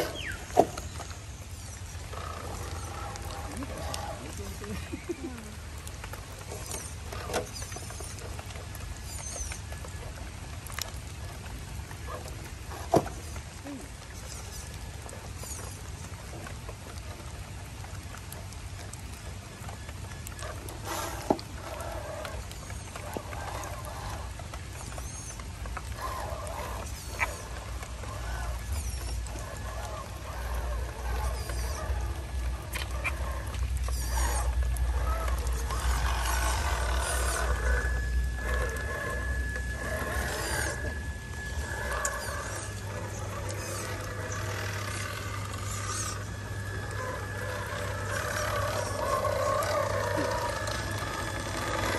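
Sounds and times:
birds chirping and calling: 0.0s - 5.6s
low rumble: 25.4s - 51.9s.

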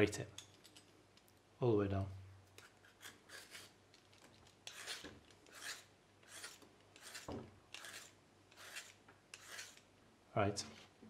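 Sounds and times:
peeler scraping radish: 2.6s - 3.8s, 4.6s - 9.9s.

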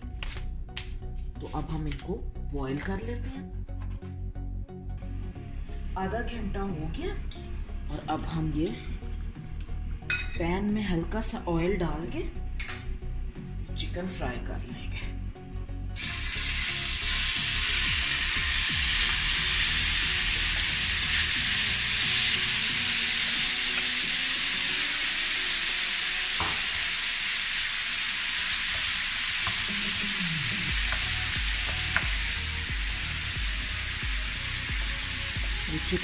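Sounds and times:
chicken sizzling in hot oil: 16.0s - 36.0s.

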